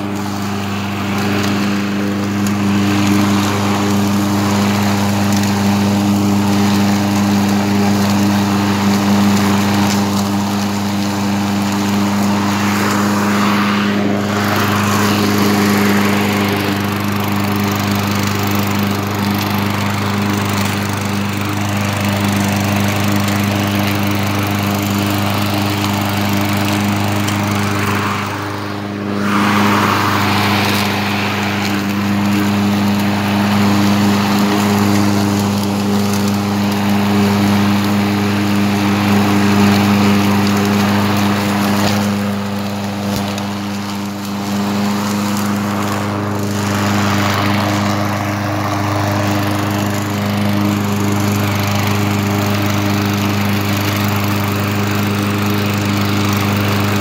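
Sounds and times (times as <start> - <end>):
lawn mower engine mowing grass: 0.0 - 57.0.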